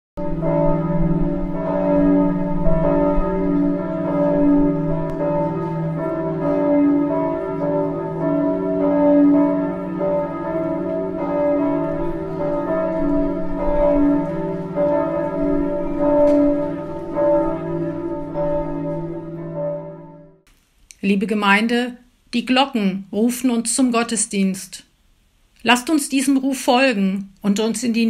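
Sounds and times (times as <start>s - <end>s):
church bells ringing: 0.2s - 20.4s.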